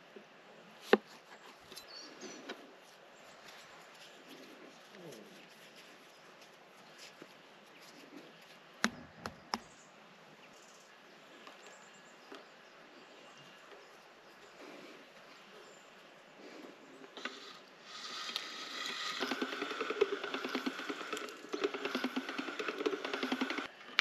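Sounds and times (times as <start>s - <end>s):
pasta machine rollers clicking: 17.1s - 23.7s.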